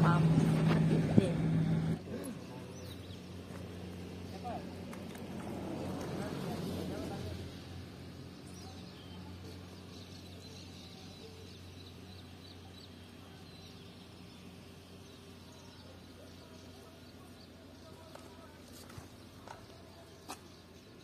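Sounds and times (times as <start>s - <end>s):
steady low hum: 0.0s - 21.0s
bird chirping: 7.6s - 21.0s.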